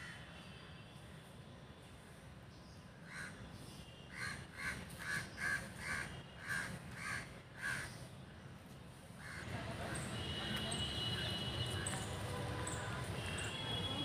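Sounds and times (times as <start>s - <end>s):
crow cawing: 4.1s - 7.9s, 9.2s - 9.5s.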